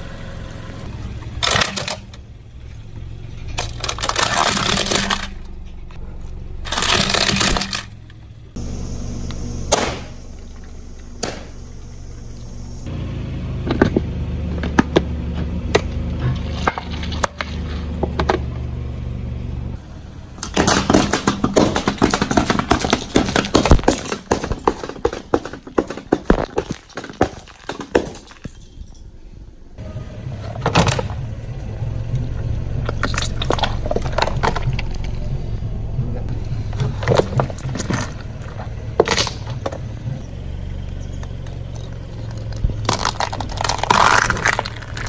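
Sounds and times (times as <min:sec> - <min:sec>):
car engine rumble: 0:00.0 - 0:45.0
tyre crushing aluminium cans: 0:03.5 - 0:05.5, 0:06.7 - 0:08.0, 0:20.5 - 0:28.9, 0:41.3 - 0:45.0
tyre cracking plastic object: 0:20.6 - 0:28.5, 0:42.3 - 0:45.0.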